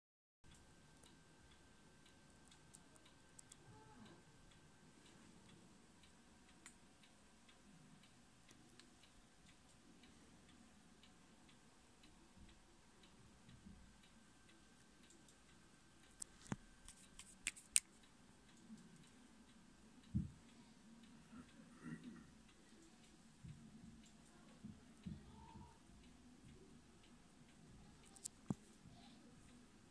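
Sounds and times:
faint ticking: 0:00.5 - 0:29.9
sharp clicks: 0:15.0 - 0:19.2.

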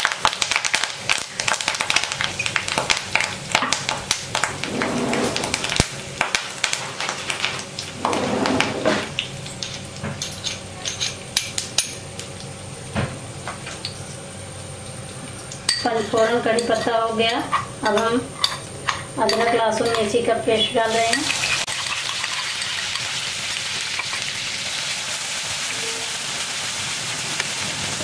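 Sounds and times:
spices spluttering in hot oil: 0:00.0 - 0:08.2, 0:09.0 - 0:17.7, 0:20.8 - 0:28.0.

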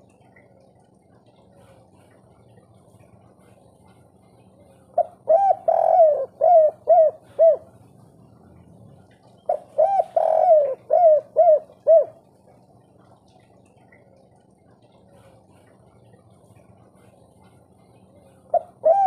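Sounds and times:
dove cooing: 0:04.9 - 0:07.8, 0:09.4 - 0:12.3, 0:18.3 - 0:19.0.

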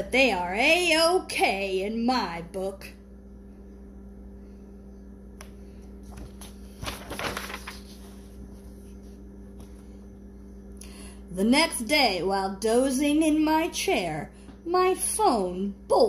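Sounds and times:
low hum: 0:00.0 - 0:16.0
book page turning: 0:06.0 - 0:10.0.

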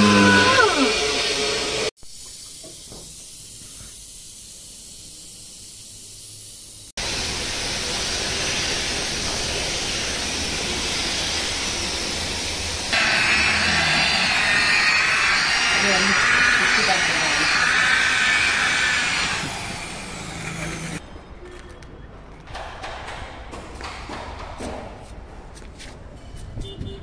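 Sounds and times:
paint spray gun hissing: 0:01.2 - 0:21.0
rotary polisher motor whine: 0:12.9 - 0:21.0.

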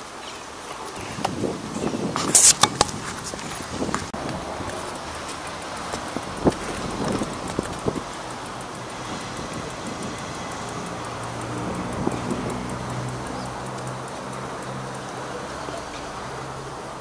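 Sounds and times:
road traffic: 0:00.0 - 0:17.0
wind on microphone: 0:00.9 - 0:05.2, 0:05.9 - 0:08.2, 0:08.8 - 0:13.2.

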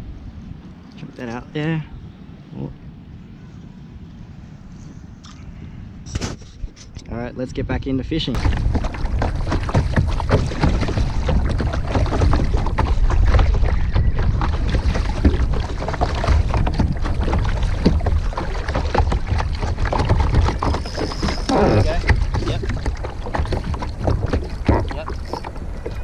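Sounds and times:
wind on microphone: 0:00.0 - 0:26.0
paddle splashing in water: 0:08.4 - 0:26.0.

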